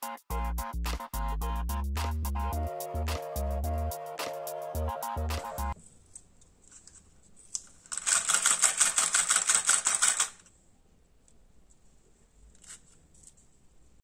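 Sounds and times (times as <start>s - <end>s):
small motor rattling clicks: 7.9s - 10.4s.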